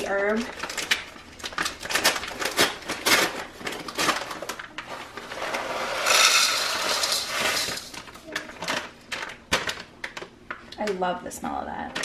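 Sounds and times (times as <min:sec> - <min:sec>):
dry crumbs pouring into bowl: 0:05.6 - 0:07.9.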